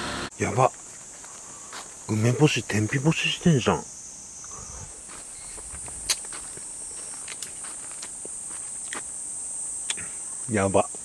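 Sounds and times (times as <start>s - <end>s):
high-pitched insect chorus: 0.3s - 11.0s
footsteps on bare soil: 0.7s - 2.1s, 4.9s - 9.2s.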